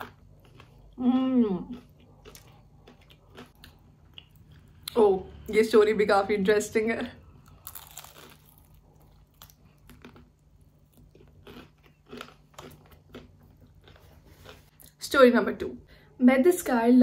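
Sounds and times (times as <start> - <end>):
crispy chicken crunching: 0.0 - 1.0, 1.7 - 4.6, 7.4 - 14.6.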